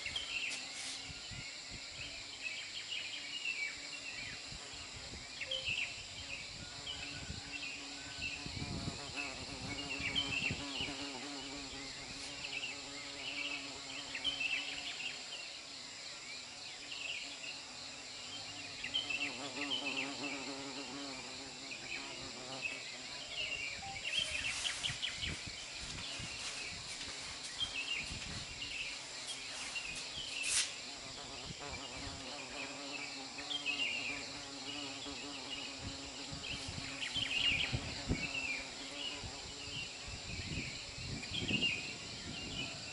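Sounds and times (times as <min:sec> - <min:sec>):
insect chirps: 0:00.0 - 0:42.9
high-pitched insect drone: 0:16.3 - 0:42.9.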